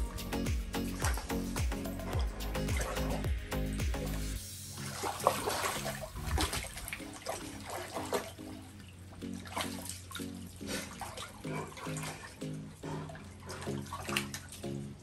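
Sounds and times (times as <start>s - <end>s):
water splashing in a dog pool: 0.6s - 15.0s.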